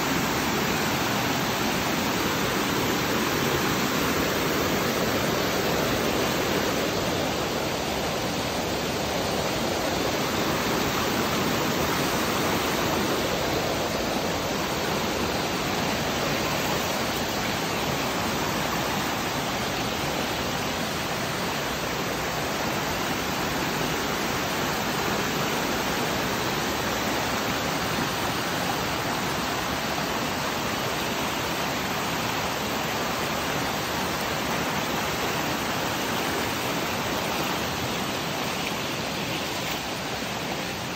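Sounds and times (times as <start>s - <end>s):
stream rushing over rocks: 0.0s - 40.9s.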